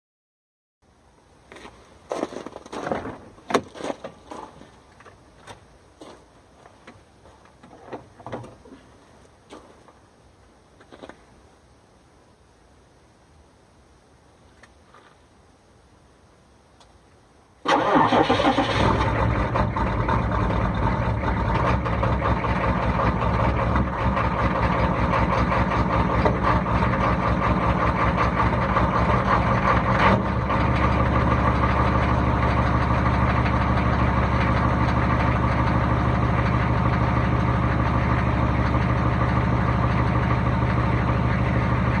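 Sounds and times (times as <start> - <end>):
diesel engine idling: 17.7 - 42.0.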